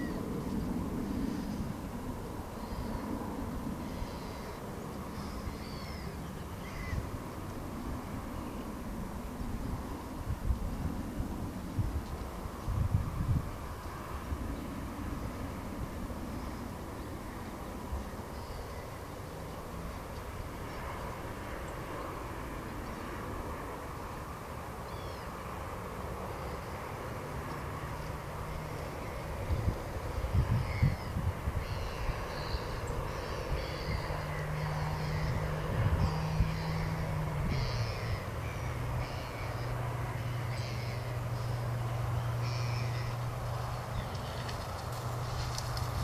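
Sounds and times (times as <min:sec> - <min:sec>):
faint high bird chirps: 0:05.2 - 0:07.0.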